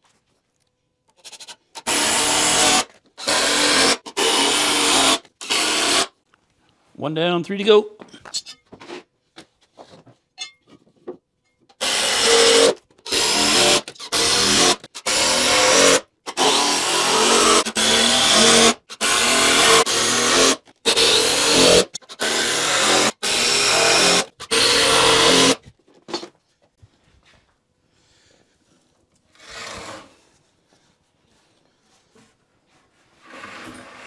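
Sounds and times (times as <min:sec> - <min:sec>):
power drill driving screws: 0:01.2 - 0:06.1, 0:11.8 - 0:25.6, 0:29.4 - 0:30.1.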